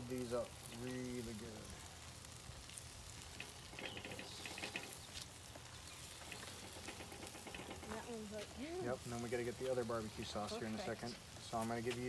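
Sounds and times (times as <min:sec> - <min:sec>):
chicken sizzling on a grill: 0:00.0 - 0:12.0
quick runs of ticks: 0:03.3 - 0:05.4.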